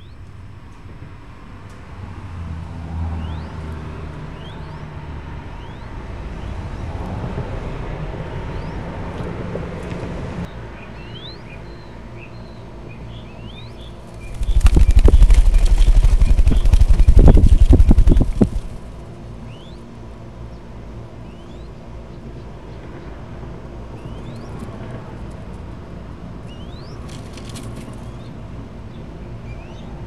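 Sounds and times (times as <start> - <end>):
faint high bird chirps: 4.4 - 4.9, 5.6 - 6.0, 10.8 - 18.8, 24.0 - 24.6
bird wings fluttering loudly: 14.2 - 18.9.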